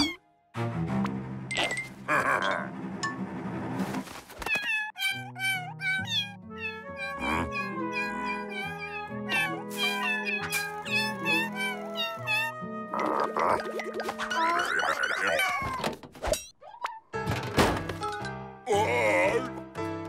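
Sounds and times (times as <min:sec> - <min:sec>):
background music low notes: 0:00.0 - 0:04.2, 0:17.1 - 0:20.0
cartoon cat meow-like chatter: 0:04.4 - 0:13.6, 0:14.3 - 0:15.9.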